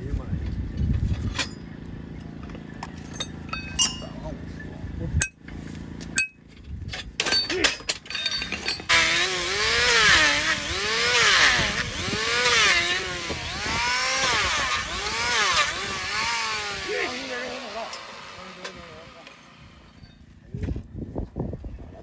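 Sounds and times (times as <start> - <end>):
hand tools clicking and knocking: 6.0 - 9.2, 17.8 - 19.4
electric hoof trimmer motor: 8.8 - 20.1.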